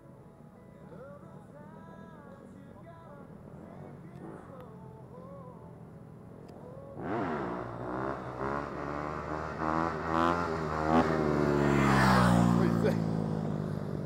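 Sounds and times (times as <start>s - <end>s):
dirt bike engine accelerating: 7.0s - 14.0s.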